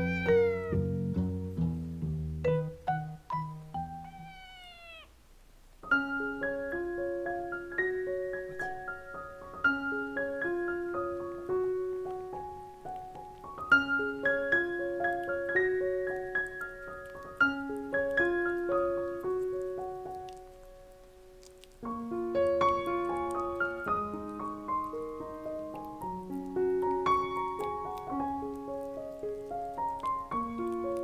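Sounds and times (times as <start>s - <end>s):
kitten meowing: 0.0s - 0.9s, 3.9s - 5.2s
gentle piano music: 0.0s - 4.7s, 5.8s - 31.0s.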